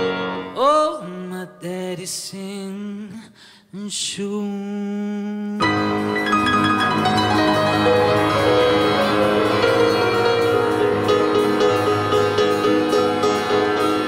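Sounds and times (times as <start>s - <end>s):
man singing: 0.4s - 6.2s
live band music: 5.6s - 14.0s.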